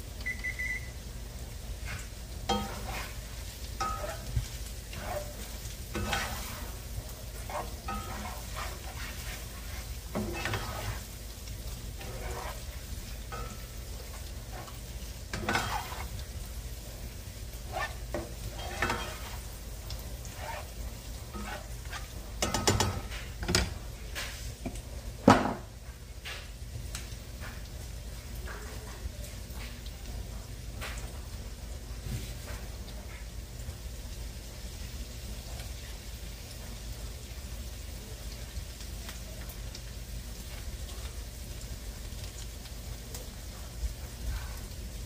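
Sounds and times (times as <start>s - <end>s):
sausage sizzling in a skillet: 0.0s - 45.0s
spatula scraping a skillet: 1.7s - 23.4s.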